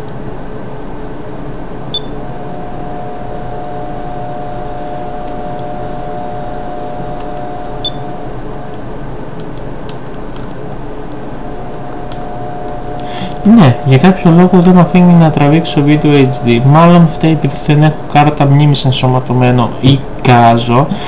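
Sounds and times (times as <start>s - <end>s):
steady hum: 0.0s - 21.0s
short high electronic beeps: 1.9s - 2.2s, 7.8s - 8.1s.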